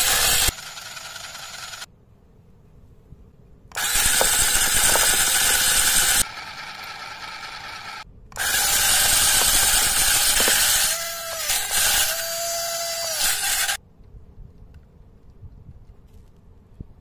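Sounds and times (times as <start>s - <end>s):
steady motor whine: 0.0s - 1.9s, 3.7s - 13.8s
toy motor whirring gear clatter: 0.0s - 1.9s, 3.7s - 13.8s.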